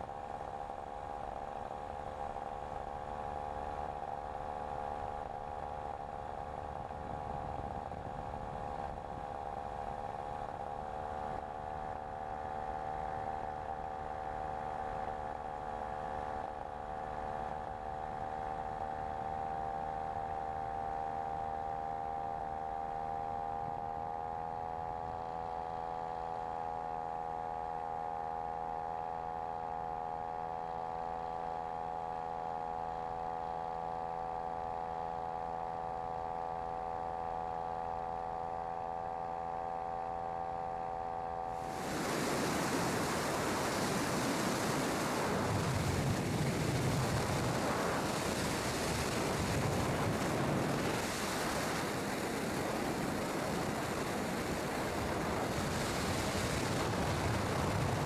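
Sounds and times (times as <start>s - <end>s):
microlight engine drone: 0.0s - 58.0s
wind rumble: 41.6s - 58.0s.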